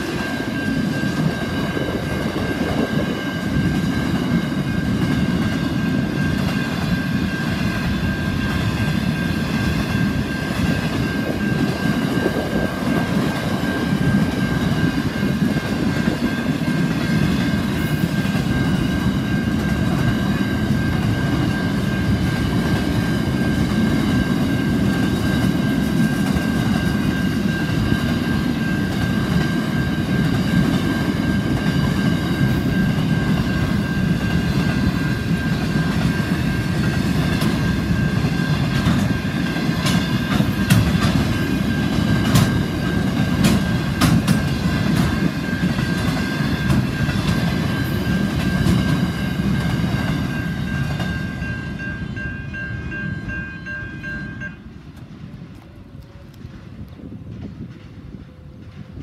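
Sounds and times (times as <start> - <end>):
steady high tone: 0.0 - 56.3
train wagons rumbling past: 0.0 - 59.0
wheels clicking over rail joints: 8.0 - 51.2.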